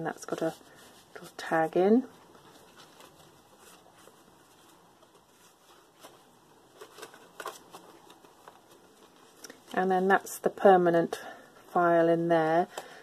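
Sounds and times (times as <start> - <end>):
paper rustling: 2.1 - 10.2.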